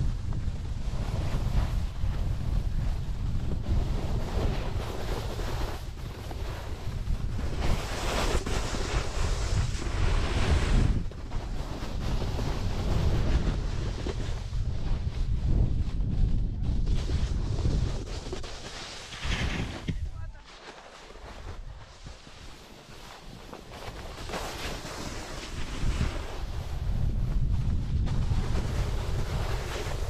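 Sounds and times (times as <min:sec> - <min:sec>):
wind buffeting microphone: 0:00.0 - 0:20.3, 0:24.8 - 0:30.0
snowboard hissing on snow: 0:17.0 - 0:27.5.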